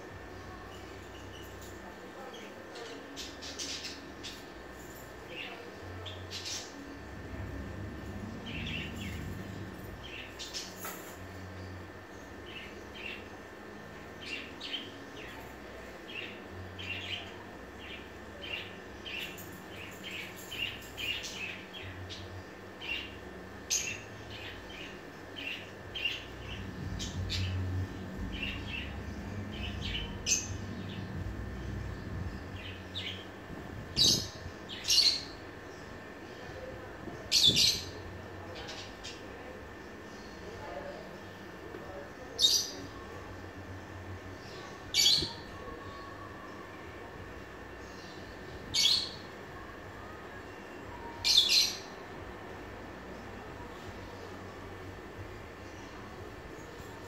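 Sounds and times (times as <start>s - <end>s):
birds chirping: 5.3s - 52.5s
faint low rumble: 7.0s - 10.4s, 25.9s - 34.8s.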